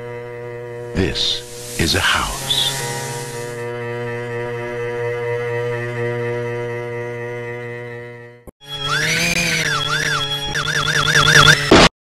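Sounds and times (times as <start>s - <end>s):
wavering high tone: 8.6s - 11.6s.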